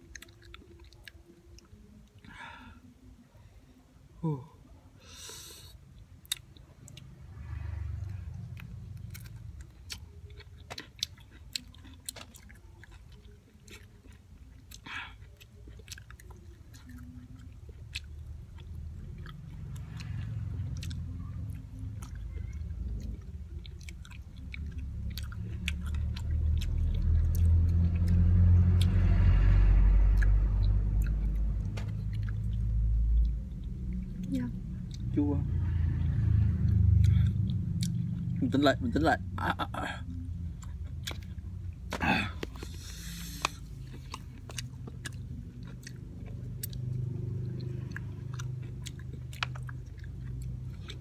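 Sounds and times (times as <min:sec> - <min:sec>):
person chewing fruit: 0:00.0 - 0:02.6, 0:05.1 - 0:35.2, 0:35.8 - 0:51.0
low rumble: 0:18.3 - 0:50.8.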